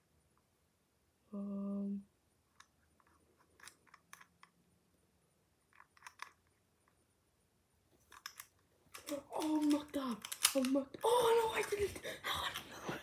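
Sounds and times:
padlock dial clicks and scrapes: 0:02.5 - 0:04.6, 0:05.7 - 0:06.6, 0:08.0 - 0:10.7.

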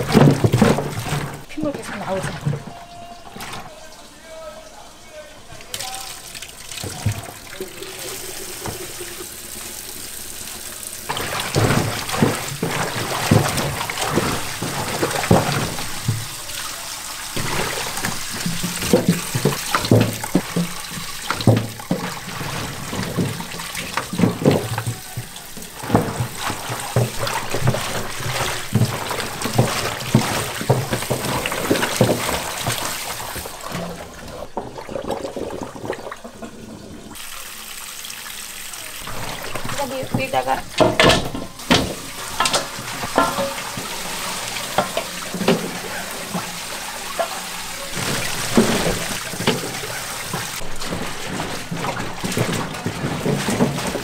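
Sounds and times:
tap water running into sink: 0:00.0 - 0:03.9, 0:05.4 - 0:54.0
hands scrubbing in water: 0:00.0 - 0:37.6, 0:38.8 - 0:54.0
water splashing and sloshing: 0:00.0 - 0:54.0.

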